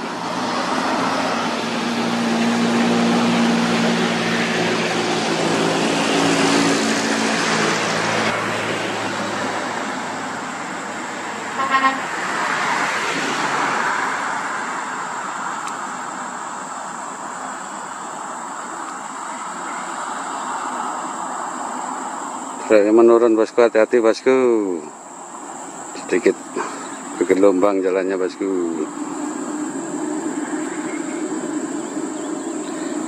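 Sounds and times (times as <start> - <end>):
truck engine humming: 0.0 - 22.6, 24.6 - 33.0
road noise: 0.0 - 33.0
vehicle horn toot: 11.5 - 12.2.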